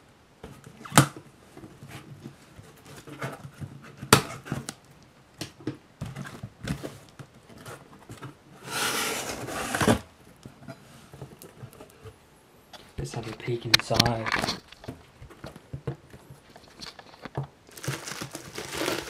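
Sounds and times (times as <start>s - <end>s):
tape ripping off box: 17.7s - 19.0s.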